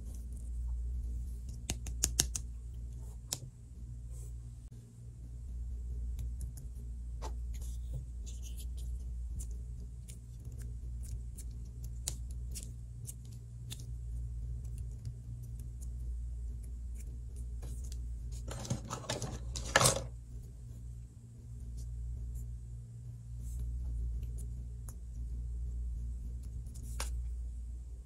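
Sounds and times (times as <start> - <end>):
steady low hum: 0.0 - 28.0
fingers tapping modelling dough: 1.4 - 2.5.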